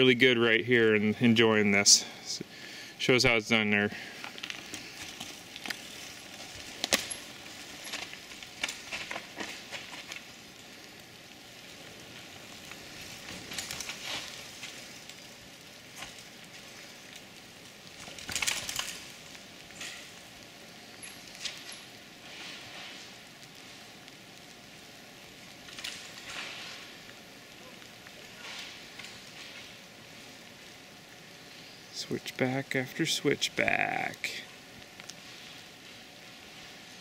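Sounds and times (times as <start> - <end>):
bike tyres crunching on trail: 3.5 - 37.0
bike clicks and rattles: 4.1 - 22.2, 25.3 - 27.2.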